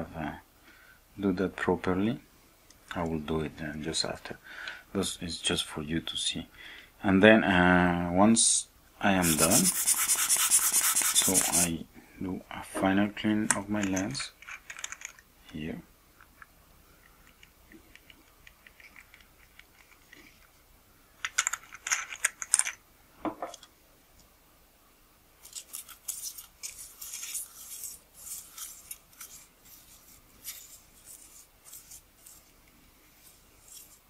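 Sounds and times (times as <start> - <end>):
cleaning paper wiping glass: 9.2 - 11.7.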